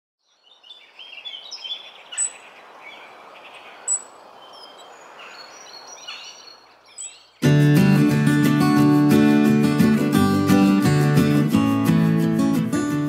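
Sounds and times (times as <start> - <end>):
songbirds chirping: 0.2 - 12.6
background hiss: 0.6 - 7.4.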